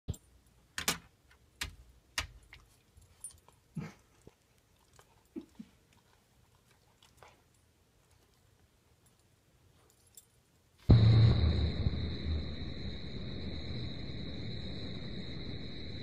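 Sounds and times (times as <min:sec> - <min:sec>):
short low sounds: 0:10.9 - 0:16.0.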